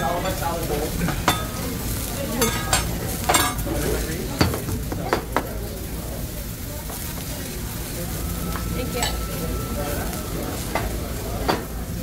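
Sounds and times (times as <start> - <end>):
metal spatulas clanking on griddle: 0.0 - 5.5
food sizzling on griddle: 0.0 - 12.0.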